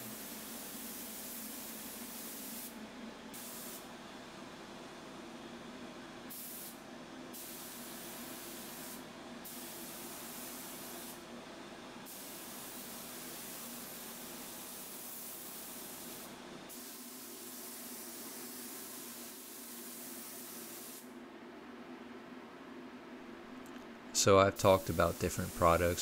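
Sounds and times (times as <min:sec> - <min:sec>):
spray gun hissing: 0:00.0 - 0:02.7, 0:03.4 - 0:03.8, 0:06.3 - 0:11.2, 0:12.1 - 0:21.1, 0:24.6 - 0:26.0
steady low hum: 0:21.1 - 0:26.0.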